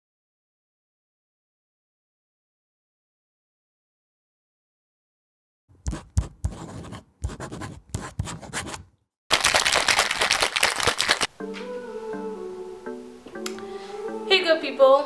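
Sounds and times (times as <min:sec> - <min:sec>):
scratchy pen writing strokes: 0:05.8 - 0:08.9
soft guitar music: 0:11.3 - 0:15.0.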